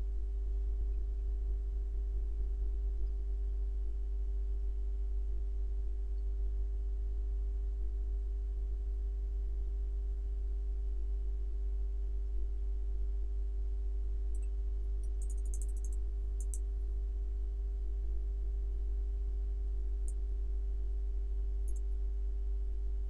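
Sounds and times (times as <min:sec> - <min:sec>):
low electrical hum: 0:00.0 - 0:23.0
faint high-pitched ticks: 0:14.3 - 0:16.9, 0:20.0 - 0:20.2, 0:21.6 - 0:22.0.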